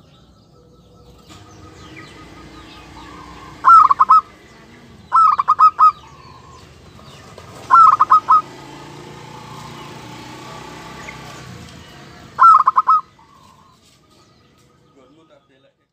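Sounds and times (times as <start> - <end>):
dove cooing: 1.1 - 13.8.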